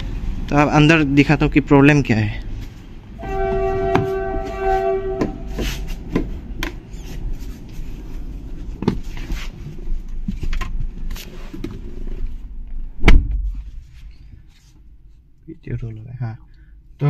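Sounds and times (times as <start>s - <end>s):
car door thump: 13.0s - 13.6s.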